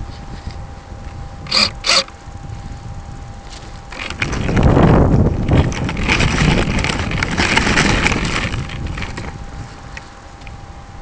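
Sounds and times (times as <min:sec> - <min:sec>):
wind buffeting microphone: 0:00.0 - 0:11.0
model scraping over pebbly sand: 0:03.4 - 0:10.2.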